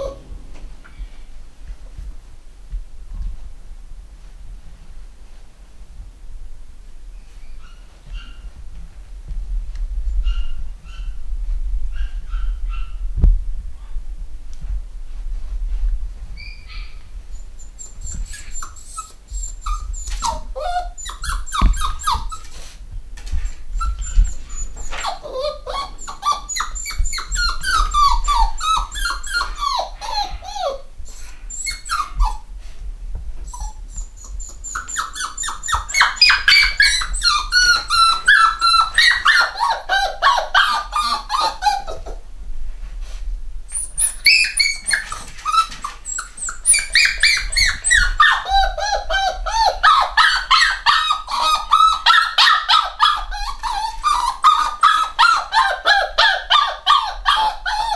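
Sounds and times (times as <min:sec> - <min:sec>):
puppies whining: 0:00.0 - 0:01.2, 0:10.2 - 0:11.2, 0:16.4 - 0:22.7, 0:23.4 - 0:32.5, 0:33.4 - 0:42.2, 0:43.7 - 0:57.9.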